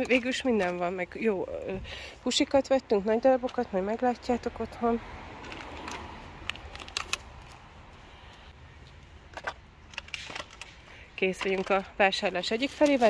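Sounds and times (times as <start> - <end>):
outdoor background noise: 0.0 - 13.0
groceries clicking and knocking: 9.3 - 13.0.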